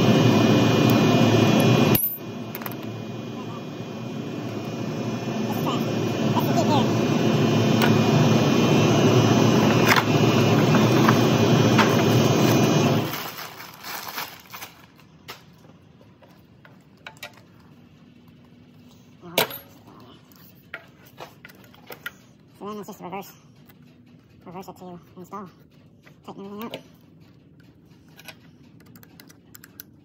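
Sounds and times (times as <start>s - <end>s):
machine motor running and winding down: 0.0s - 13.6s.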